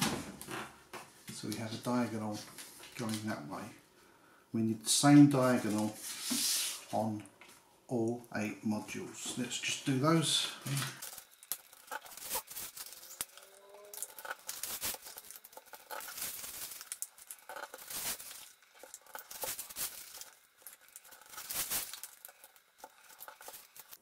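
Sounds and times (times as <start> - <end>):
paper crinkling and rustling: 10.6 - 24.0.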